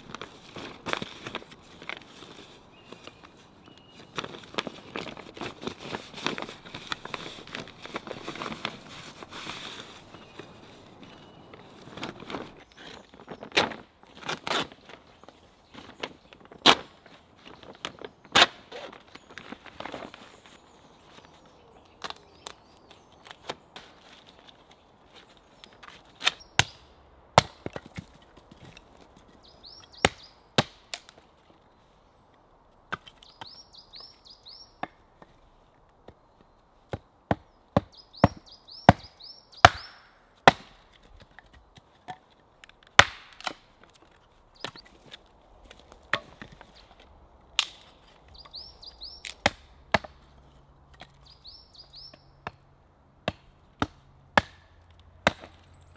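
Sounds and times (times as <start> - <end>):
hatchet chopping wood: 27.4 - 28.1, 30.0 - 31.1, 36.9 - 41.0, 42.9 - 43.7, 49.2 - 50.2, 53.2 - 55.6.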